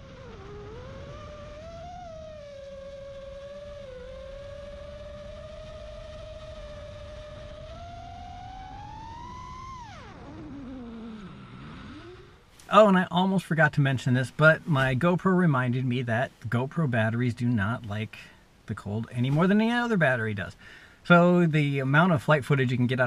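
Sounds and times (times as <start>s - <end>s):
quadcopter motors whining: 0.0s - 12.4s.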